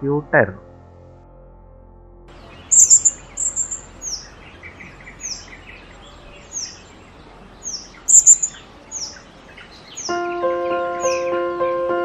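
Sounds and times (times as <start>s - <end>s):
parrot calling: 2.4s - 10.1s
shrill bird bursts: 2.4s - 10.1s.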